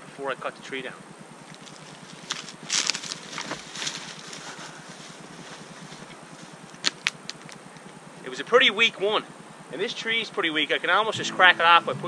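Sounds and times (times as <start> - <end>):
sharp wood crackles: 1.2 - 8.4
footsteps crunching snow and brush: 1.5 - 7.7.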